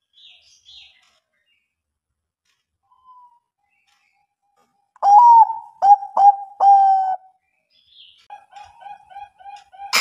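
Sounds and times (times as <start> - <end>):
dove cooing: 5.0 - 7.3, 8.3 - 10.0.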